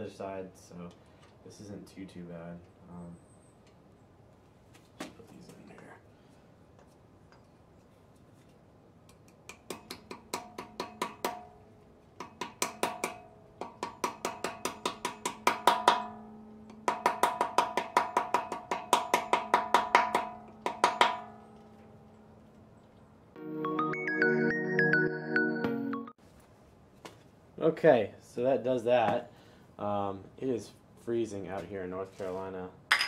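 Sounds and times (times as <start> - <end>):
hammer tapping metal pins: 9.3 - 11.5, 12.2 - 21.8
background music: 23.4 - 26.2.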